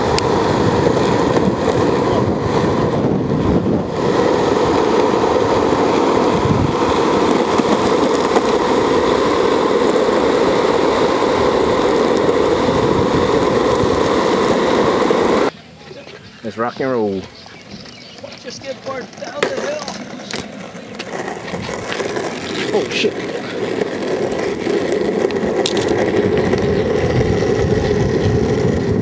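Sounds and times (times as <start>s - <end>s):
wind rushing over microphone: 0.0s - 15.5s, 24.2s - 29.0s
wheels rolling on road: 0.0s - 29.0s.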